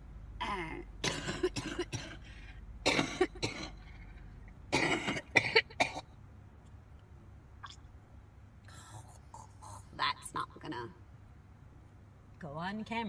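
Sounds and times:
woman coughing: 0.5 - 3.9, 4.7 - 6.0.

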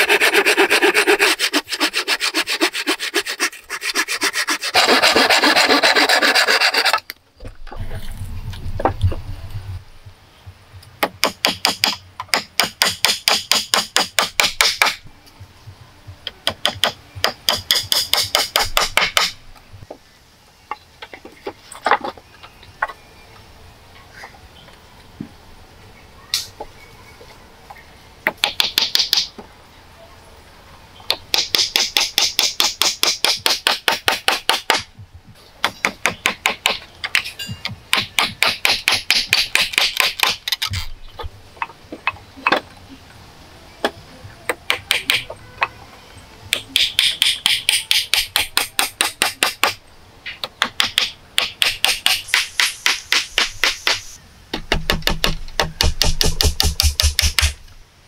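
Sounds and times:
hatchet chopping wood: 11.0 - 15.0, 16.4 - 19.4, 28.3 - 29.3, 31.1 - 34.9, 35.6 - 40.5, 44.5 - 45.3, 46.5 - 57.6.

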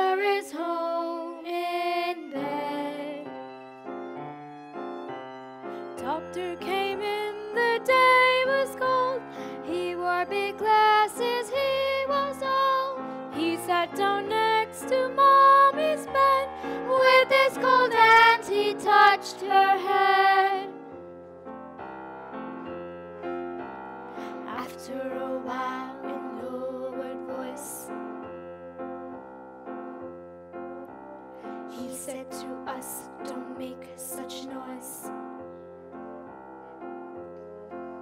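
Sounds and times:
piano accompaniment: 0.0 - 38.0
opera singing with vibrato: 6.0 - 20.7.

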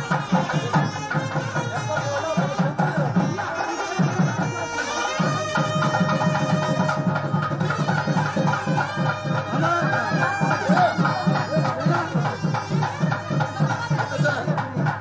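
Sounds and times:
fast steady drumming: 0.0 - 15.0
double-reed horn long notes: 3.8 - 13.4.

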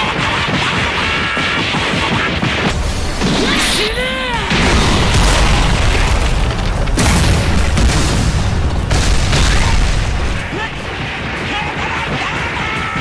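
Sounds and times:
booming explosions: 2.7 - 11.4.

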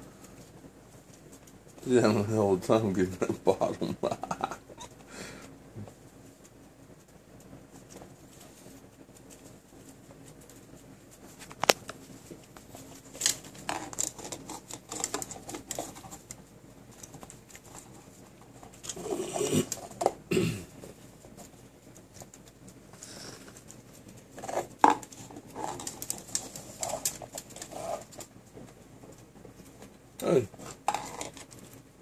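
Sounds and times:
plastic cup scraping on wooden floor: 18.8 - 20.2, 24.4 - 28.2, 30.6 - 31.5.

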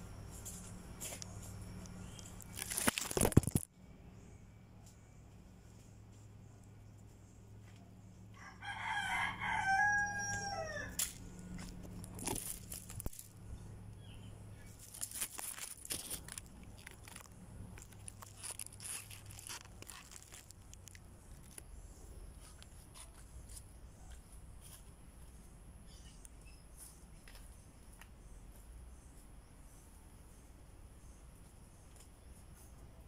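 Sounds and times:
clicks and crackling rustles: 0.4 - 3.7, 10.9 - 13.4, 14.7 - 21.7
rooster crowing: 8.3 - 11.0.

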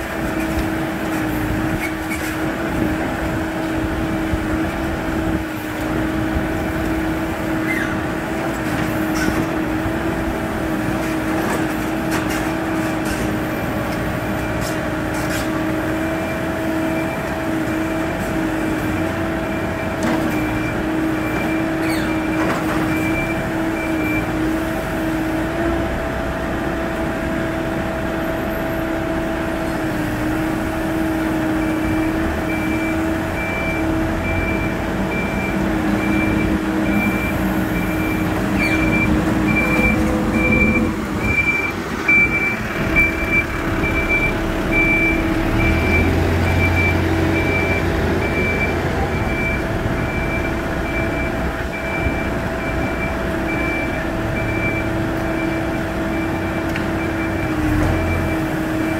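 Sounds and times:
diesel engine idling: 24.5 - 58.9.

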